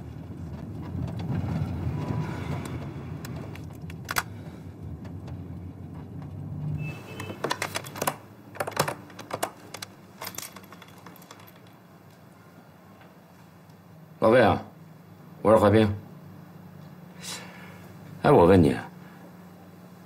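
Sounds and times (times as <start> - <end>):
keys clicking like typing: 6.8 - 11.8.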